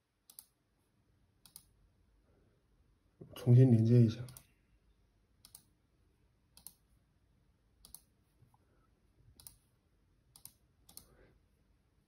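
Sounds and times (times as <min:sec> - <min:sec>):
computer clicks: 0:00.2 - 0:00.6, 0:01.4 - 0:01.8, 0:04.3 - 0:04.6, 0:05.4 - 0:05.8, 0:06.5 - 0:06.8, 0:07.8 - 0:08.1, 0:09.3 - 0:09.7, 0:10.3 - 0:11.2.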